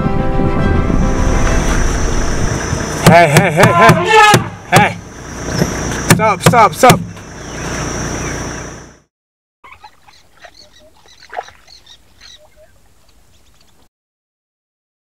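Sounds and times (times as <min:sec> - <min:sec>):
wind noise: 0:00.0 - 0:03.0
vehicle engine idling: 0:01.4 - 0:09.1
quiet bush ambience: 0:04.5 - 0:09.0, 0:09.7 - 0:13.9.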